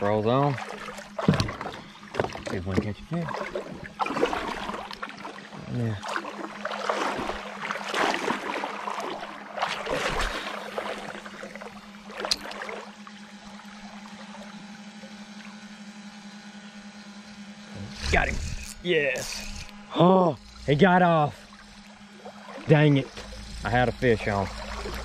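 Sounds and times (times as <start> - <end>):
electric trolling motor hum: 0.0 - 25.0.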